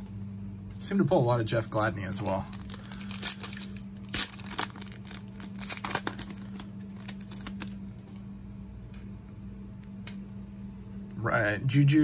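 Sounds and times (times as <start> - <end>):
foil wrapper crinkling and tearing: 1.6 - 8.2.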